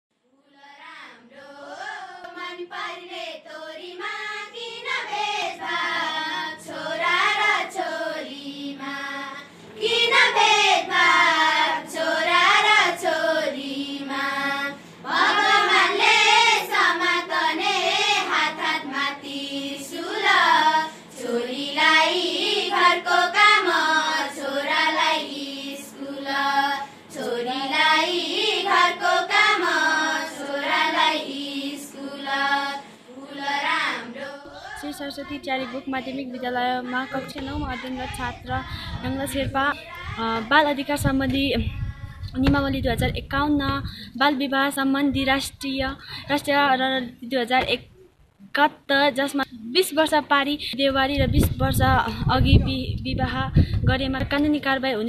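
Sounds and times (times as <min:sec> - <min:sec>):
girls singing: 0:00.3 - 0:42.6.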